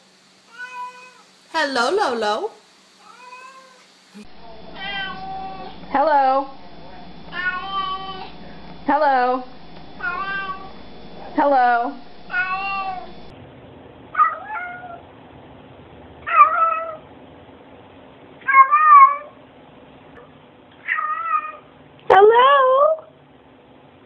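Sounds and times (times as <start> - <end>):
cats meowing: 0.5 - 1.3, 3.0 - 3.8, 4.7 - 5.8, 7.3 - 8.4, 10.0 - 10.8, 12.3 - 13.2, 16.3 - 17.0, 18.5 - 19.3, 20.8 - 21.6.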